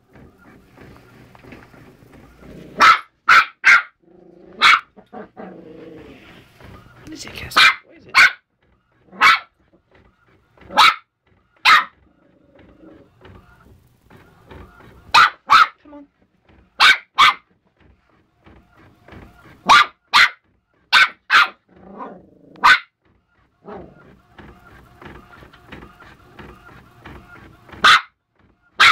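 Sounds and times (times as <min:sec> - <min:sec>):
puppy yapping: 0:02.6 - 0:06.2, 0:07.5 - 0:08.5, 0:09.1 - 0:09.6, 0:10.6 - 0:12.0, 0:15.1 - 0:15.8, 0:16.8 - 0:17.5, 0:19.6 - 0:23.0, 0:27.8 - 0:28.9.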